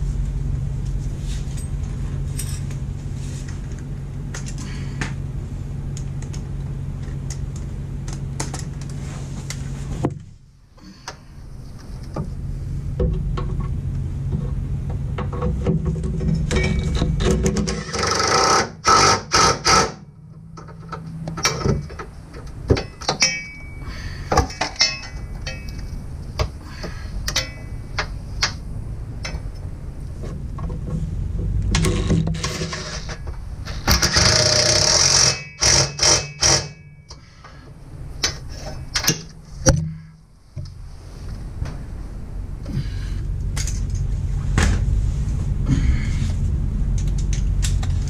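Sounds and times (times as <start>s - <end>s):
power tool driving a nut: 17.2s - 20.0s, 31.8s - 36.8s
metal clicks and clinks: 24.4s - 26.0s, 27.2s - 28.6s.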